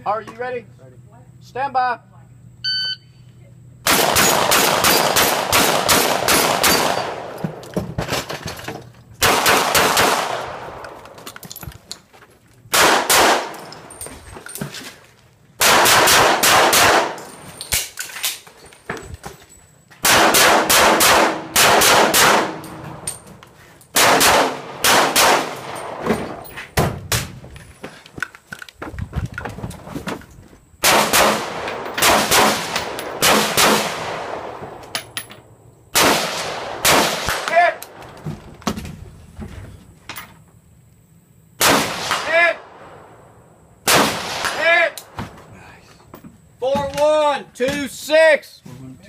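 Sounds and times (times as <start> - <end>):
rapid gunshot bursts: 3.9 - 7.3, 9.2 - 10.4, 12.7 - 13.5, 15.6 - 17.2, 20.0 - 22.6, 24.0 - 25.6.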